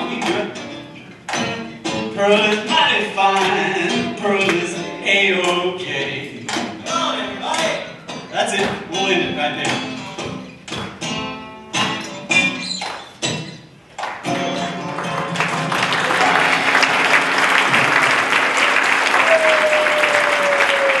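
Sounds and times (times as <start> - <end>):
guitar strumming chords: 0.0 - 12.6, 13.2 - 17.9
audience applause: 14.9 - 21.0.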